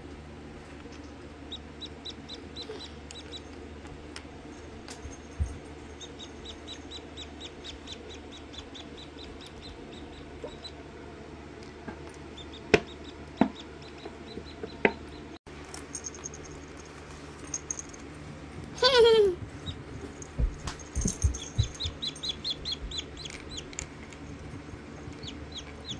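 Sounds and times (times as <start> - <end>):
steady low hum: 0.0 - 25.9
chick peeping: 1.0 - 3.4, 6.2 - 10.8, 21.6 - 23.7.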